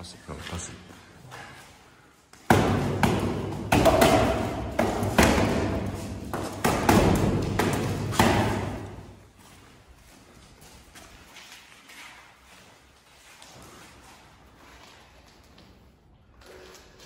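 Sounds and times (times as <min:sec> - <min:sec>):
punches thudding on punching bag: 0:02.5 - 0:09.0.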